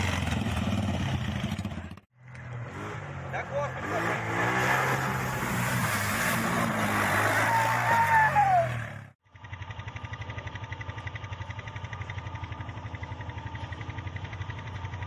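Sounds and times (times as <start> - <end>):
quad bike engine under throttle: 0.0 - 5.8, 6.4 - 15.0
falling squeal: 5.6 - 8.9
fast-pulsing engine hum: 8.8 - 15.0.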